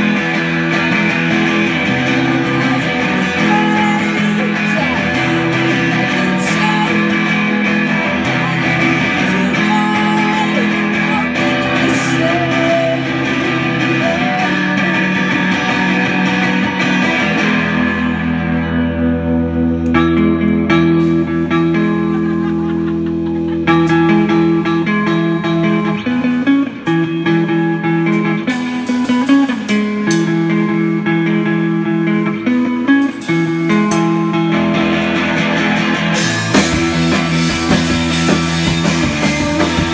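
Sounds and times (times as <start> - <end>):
electric guitar: 0.0 - 39.9
drums and cymbals: 34.9 - 39.9.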